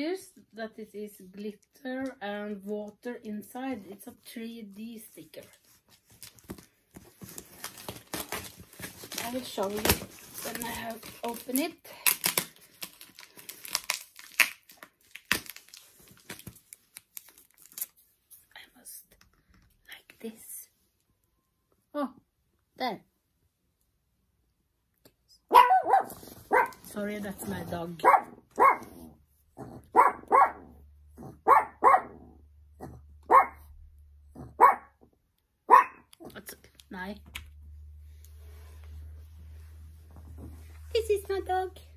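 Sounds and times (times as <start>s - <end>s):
cardboard box tearing: 6.2s - 16.2s
small dog barking: 25.5s - 26.8s, 28.0s - 29.0s, 29.9s - 30.8s, 31.4s - 32.4s, 33.2s - 33.7s, 34.4s - 35.0s, 35.7s - 36.1s.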